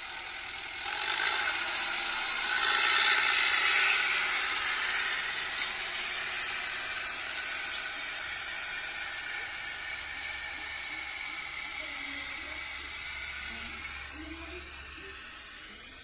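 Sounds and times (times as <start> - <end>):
harrow hissing through stubble: 0.0 - 16.0
tractor engine under load: 0.0 - 16.0.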